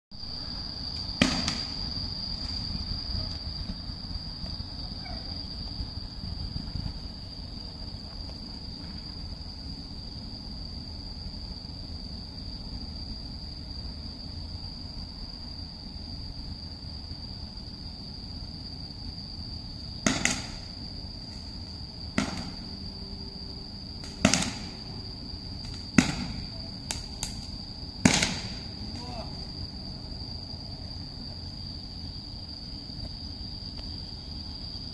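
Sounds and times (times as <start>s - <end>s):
insects trilling: 0.1s - 34.9s
fireworks bangs: 1.2s - 2.0s, 22.1s - 22.8s, 24.0s - 24.9s, 25.6s - 29.5s.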